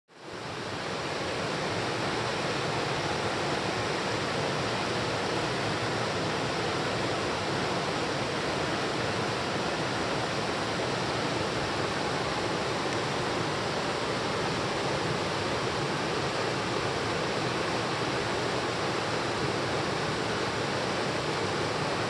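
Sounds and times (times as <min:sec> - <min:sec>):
stream rushing over rocks: 0:00.2 - 0:22.0.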